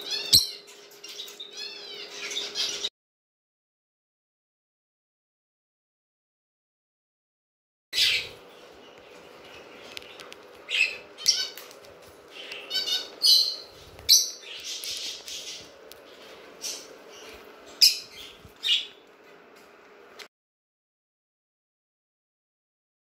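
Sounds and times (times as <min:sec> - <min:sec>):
finches chirping: 0:00.0 - 0:02.9, 0:08.0 - 0:15.8, 0:16.6 - 0:19.0.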